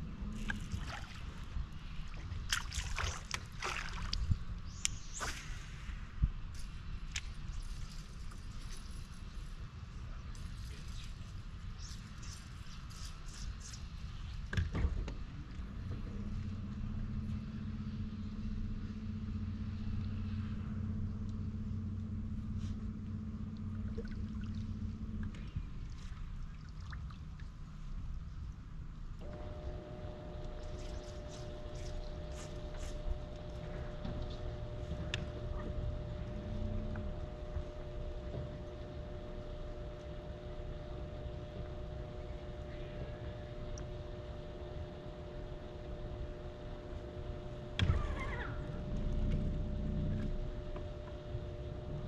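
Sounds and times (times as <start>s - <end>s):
water lapping against hull: 0.0s - 6.1s, 15.4s - 28.6s, 29.3s - 52.0s
steady low rumble: 0.0s - 52.0s
water splashing against boat hull: 0.4s - 4.4s
electric boat motor humming: 15.2s - 28.2s, 29.1s - 52.0s.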